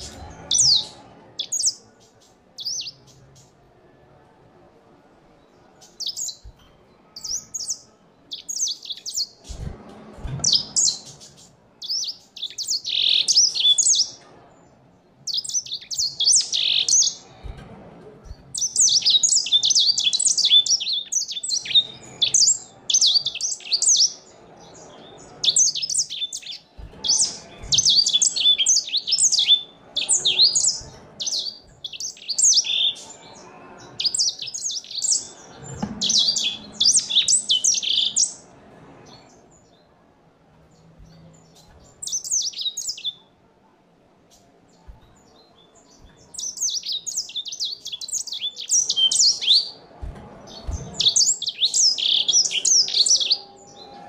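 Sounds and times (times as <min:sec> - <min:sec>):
finch twittering: 0:07.2 - 0:09.6, 0:10.4 - 0:14.2, 0:15.3 - 0:17.2, 0:18.3 - 0:24.3, 0:25.4 - 0:33.0, 0:34.0 - 0:35.4, 0:36.0 - 0:38.4, 0:41.0 - 0:43.2, 0:45.9 - 0:49.8, 0:50.6 - 0:53.4.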